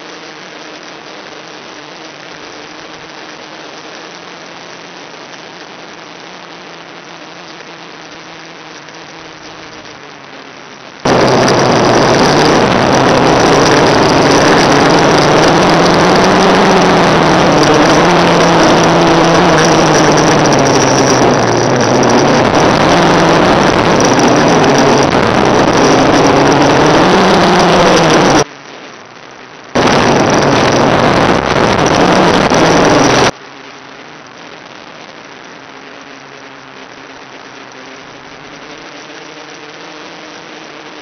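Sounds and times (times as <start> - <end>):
quadcopter motors droning: 0.0 - 28.5, 29.8 - 33.3
loud video link hiss: 0.0 - 41.0.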